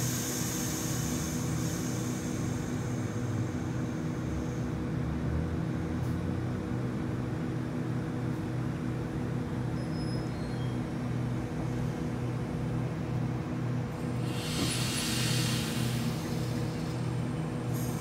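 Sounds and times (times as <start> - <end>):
high hiss: 0.0 - 5.0, 14.0 - 18.0
electric train humming: 0.0 - 7.7, 12.0 - 18.0.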